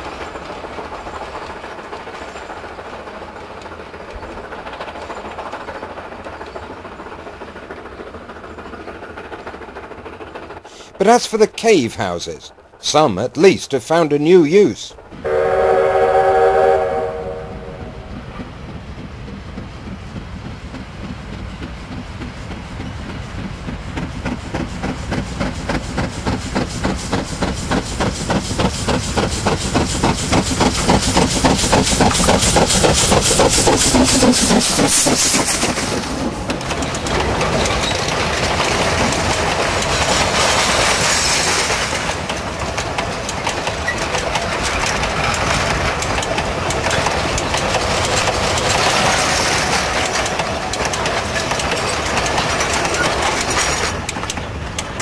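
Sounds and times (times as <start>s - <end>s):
steam locomotive exhaust beats: 15.1s - 40.9s
wagons rumbling and clacking: 18.0s - 55.0s.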